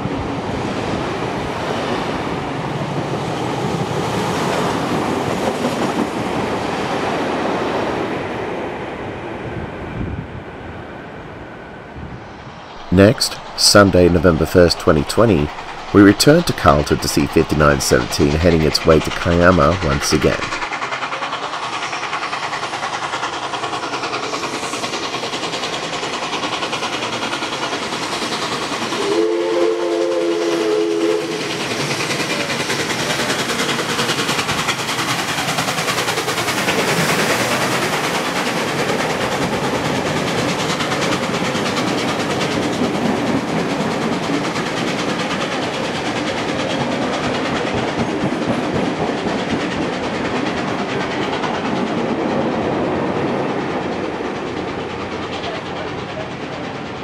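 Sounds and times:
steam locomotive running: 0:00.0 - 0:09.2, 0:09.8 - 0:57.0
locomotive whistle blast: 0:29.0 - 0:31.4.

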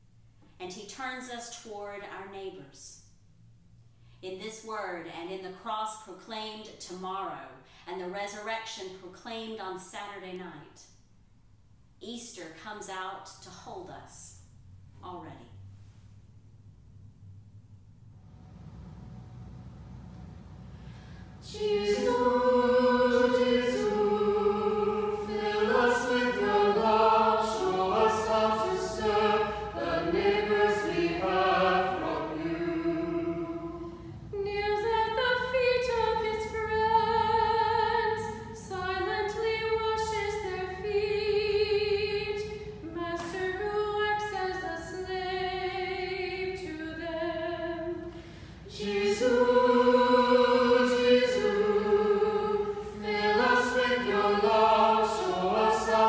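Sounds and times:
mixed choir singing unaccompanied: 0:20.8 - 0:56.0.

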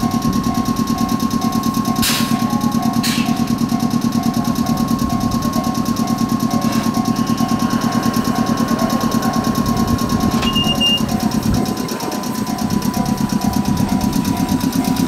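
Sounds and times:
air compressor chugging: 0:00.0 - 0:15.0
steady high tone: 0:00.0 - 0:15.0
repeating beep: 0:10.4 - 0:11.2.

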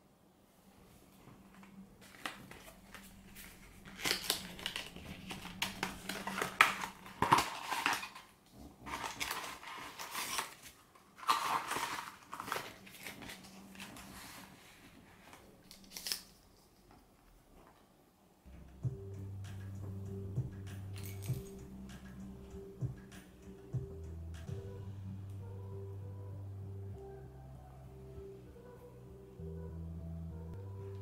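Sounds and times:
cardboard packaging rustling: 0:01.4 - 0:16.9.

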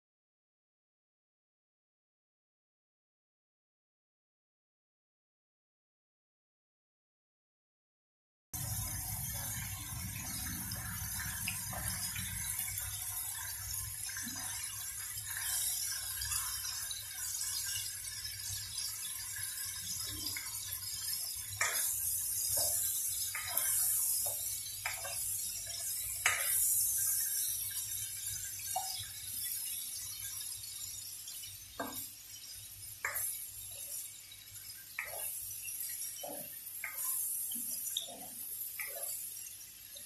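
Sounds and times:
shrimp sizzling in oil: 0:08.6 - 0:40.0
spoon tapping and scraping pan: 0:14.2 - 0:27.5, 0:31.4 - 0:39.5.

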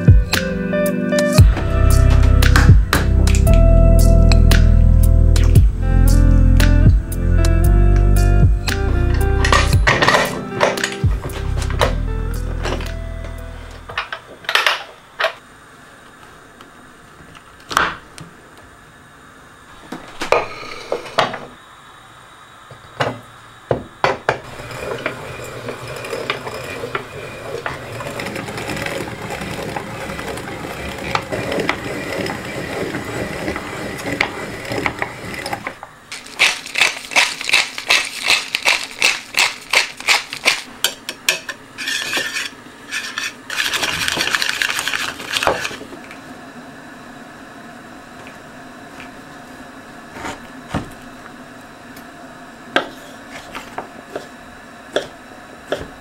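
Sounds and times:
cheese grater grinding: 0:24.5 - 0:40.7, 0:41.8 - 0:45.9.

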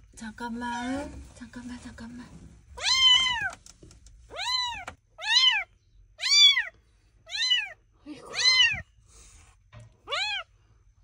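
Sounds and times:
kitten meowing: 0:02.8 - 0:03.5, 0:04.3 - 0:06.7, 0:07.3 - 0:08.8, 0:10.0 - 0:10.5.

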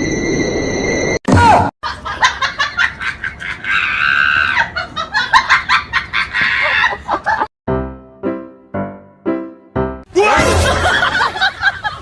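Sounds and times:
high-pitched laughing: 0:01.8 - 0:07.5.

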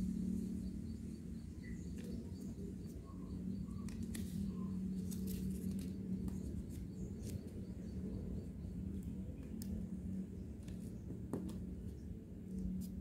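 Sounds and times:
steady low hum: 0:00.0 - 0:13.0
paper rustling and crackling: 0:03.8 - 0:07.5.

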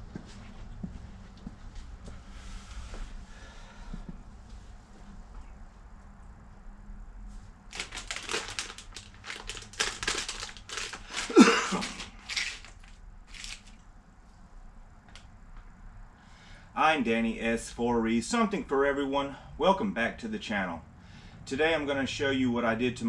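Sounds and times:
plastic bag crinkling: 0:07.7 - 0:13.8.

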